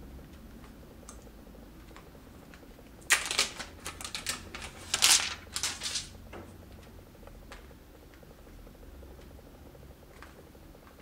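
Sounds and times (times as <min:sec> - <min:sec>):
plastic film crackling as peeled: 0:03.0 - 0:06.2.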